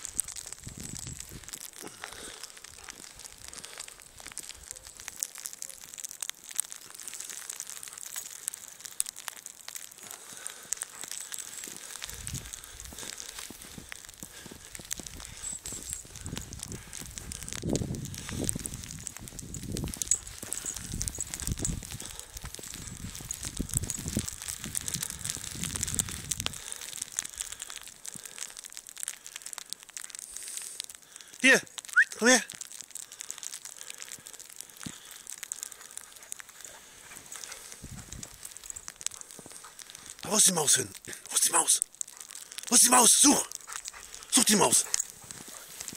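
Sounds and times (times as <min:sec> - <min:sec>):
footsteps crunching through snow: 0:10.9 - 0:27.0, 0:35.9 - 0:40.9, 0:43.3 - 0:45.9.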